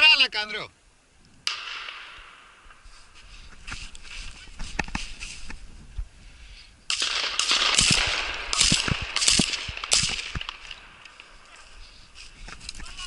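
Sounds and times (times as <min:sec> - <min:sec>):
shotgun shots: 0:01.4 - 0:02.5, 0:06.9 - 0:11.4.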